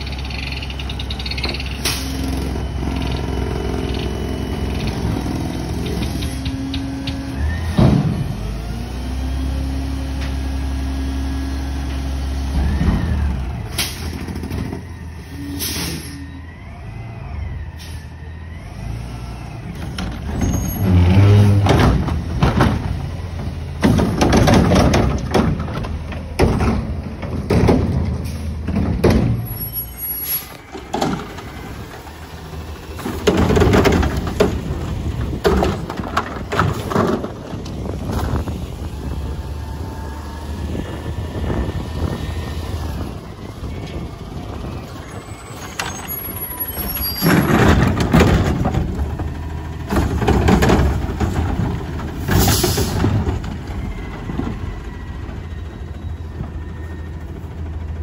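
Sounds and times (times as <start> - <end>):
diesel engine running: 0.0 - 58.0
air brakes hissing: 13.7 - 14.2, 15.2 - 16.4, 28.2 - 28.6, 29.5 - 30.7, 52.3 - 53.1
garbage truck arm surges and bangs: 19.8 - 29.6.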